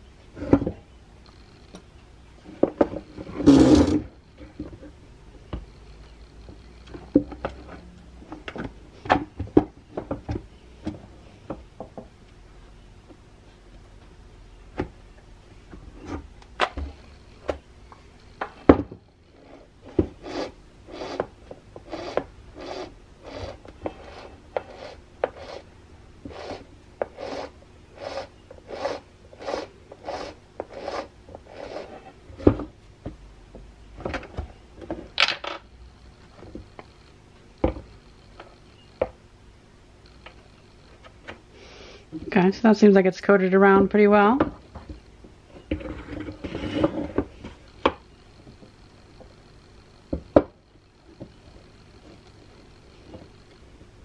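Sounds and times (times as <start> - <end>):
gearing rasping strokes: 19.4 - 25.7, 26.3 - 32.2.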